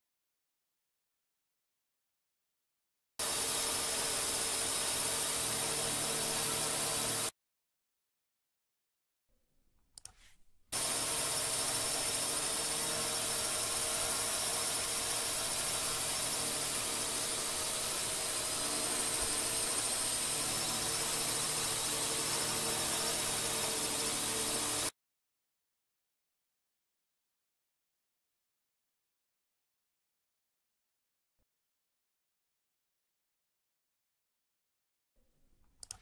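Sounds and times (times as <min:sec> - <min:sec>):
drone motors whirring: 0:03.2 - 0:07.3, 0:10.8 - 0:24.9.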